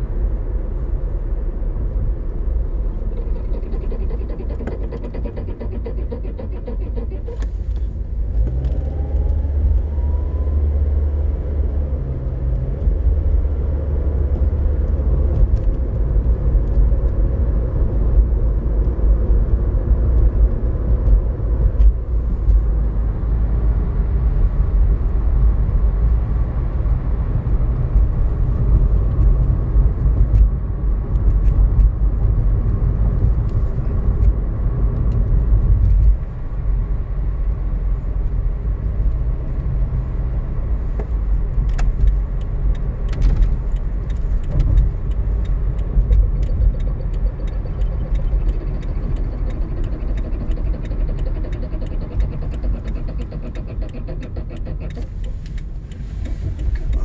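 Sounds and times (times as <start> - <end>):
car cabin road and engine rumble: 0.0 - 57.0.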